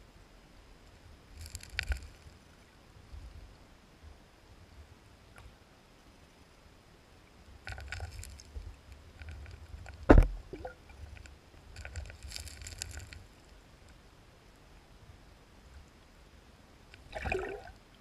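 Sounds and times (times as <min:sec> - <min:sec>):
crackling clicks: 0:01.4 - 0:02.4, 0:07.6 - 0:14.0
loud thump: 0:10.1 - 0:10.4.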